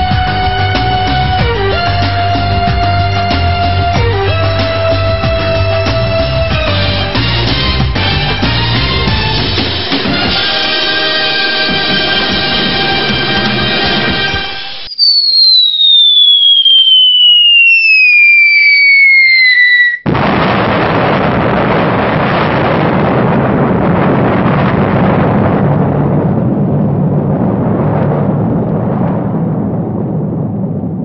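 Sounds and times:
descending whistle: 0:14.8 - 0:20.0
loud explosion with rumble: 0:19.4 - 0:31.0.

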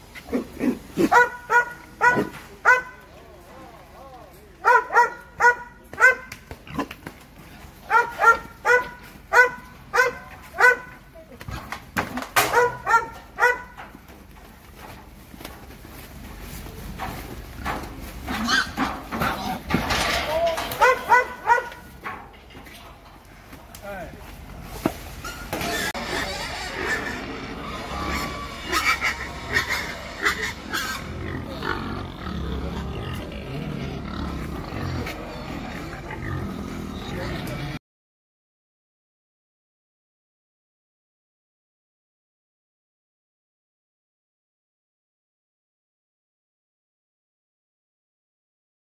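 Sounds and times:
pigs shuffling on concrete: 0:00.0 - 0:37.8
pigs squealing: 0:18.2 - 0:22.0, 0:25.2 - 0:37.8.

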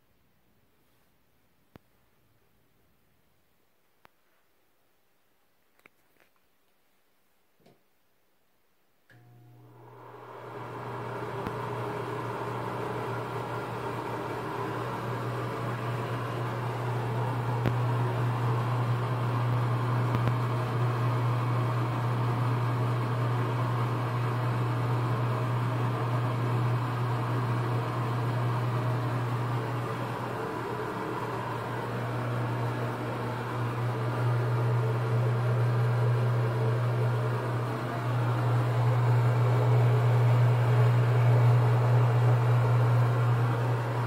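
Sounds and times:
exhaust fan running: 0:09.7 - 0:20.8, 0:26.8 - 0:44.0.

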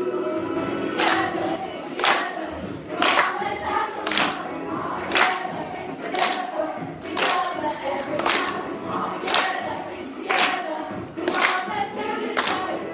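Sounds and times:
young voices singing together: 0:00.0 - 0:12.9
hands clapping in time: 0:01.0 - 0:01.3, 0:02.0 - 0:02.3, 0:02.9 - 0:03.4, 0:04.0 - 0:06.5, 0:07.1 - 0:07.5, 0:08.1 - 0:08.6, 0:09.2 - 0:09.6, 0:10.2 - 0:10.6, 0:11.2 - 0:11.7, 0:12.3 - 0:12.7.

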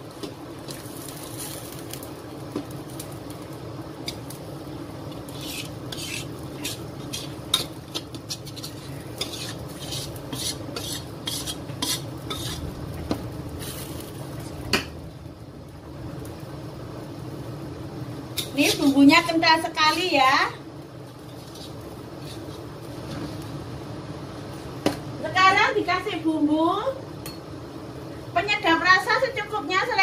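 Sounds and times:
spatula scraping metal pan: 0:05.3 - 0:12.7, 0:21.3 - 0:22.6.

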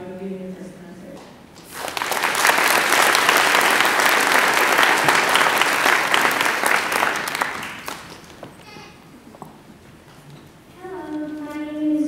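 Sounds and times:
audience applauding: 0:01.6 - 0:08.7.

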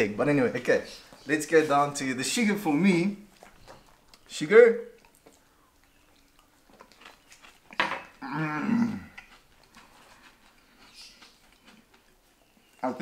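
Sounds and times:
man groaning in disgust: 0:08.2 - 0:09.1.

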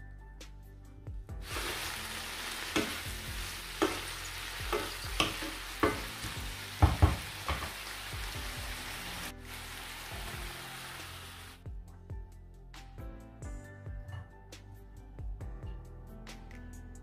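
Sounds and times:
food sizzling in frying pan: 0:01.4 - 0:11.6
spatula knocking and scraping pan: 0:02.6 - 0:08.6.

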